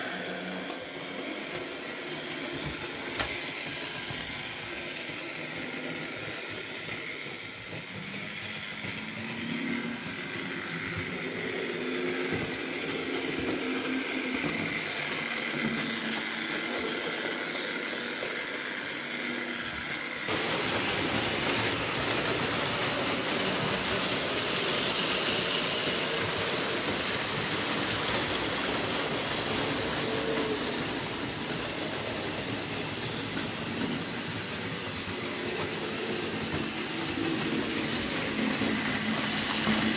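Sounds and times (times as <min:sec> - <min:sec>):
model train motor hum: 0:00.0 - 0:39.9
wheels rumbling on track: 0:20.3 - 0:39.9.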